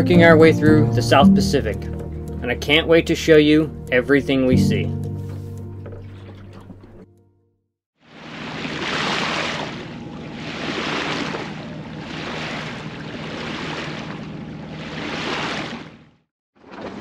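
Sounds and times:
sea water rushing past a boat: 8.0 - 17.0.

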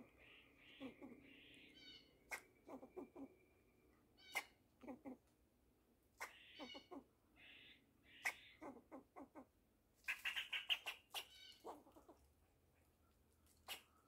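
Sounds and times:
squirrel barking chucks: 0.0 - 3.5, 4.2 - 5.3, 6.0 - 14.0.

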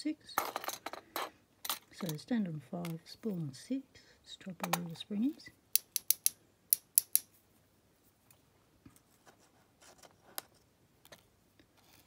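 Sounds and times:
small metal clicks: 5.7 - 7.3.

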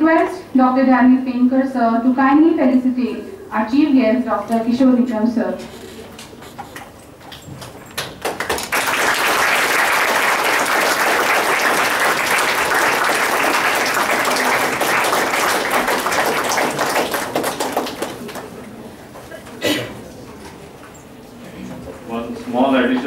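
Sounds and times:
audience applauding: 7.9 - 18.6.

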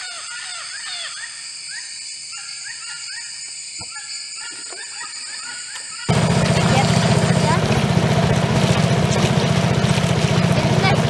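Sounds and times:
insect chorus: 0.0 - 7.0.

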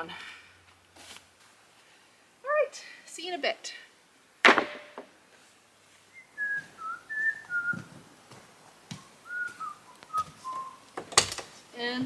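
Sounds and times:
loud knock: 4.4 - 5.1
woman whistling a slow tune: 6.2 - 7.9, 9.3 - 10.8.

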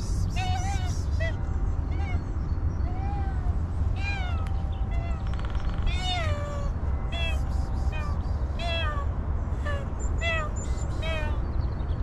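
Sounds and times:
steady low rumble: 0.0 - 12.0
cat meowing: 2.9 - 5.2, 5.9 - 7.4.

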